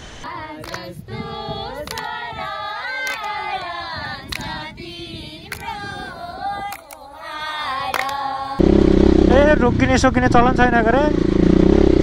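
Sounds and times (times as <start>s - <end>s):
women singing together: 0.2s - 8.6s
hands clapping: 0.6s - 0.9s, 1.8s - 2.1s, 3.0s - 3.4s, 4.3s - 4.6s, 5.5s - 5.7s, 6.7s - 7.0s, 7.9s - 8.2s.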